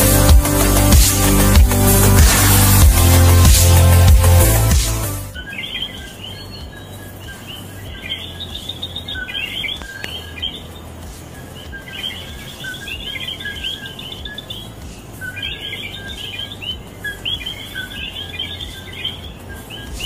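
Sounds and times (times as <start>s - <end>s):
frogs calling: 5.4s - 20.0s.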